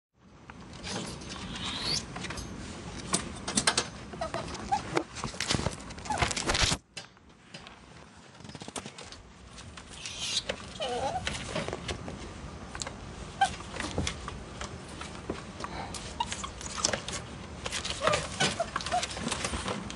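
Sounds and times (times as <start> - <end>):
ferret dooking: 1.4 - 2.1, 9.9 - 11.4
ferret hissing: 1.4 - 2.1, 9.9 - 11.2
ferrets scuffling against wire: 13.4 - 19.9.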